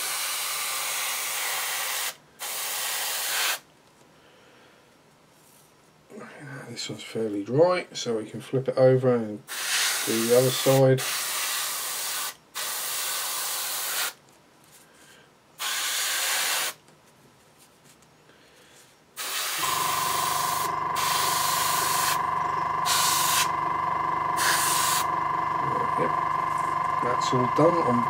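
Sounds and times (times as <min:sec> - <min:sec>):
airbrush spraying hiss: 0:19.2 - 0:22.2, 0:22.8 - 0:23.5, 0:24.4 - 0:25.1
air compressor humming: 0:19.2 - 0:28.0.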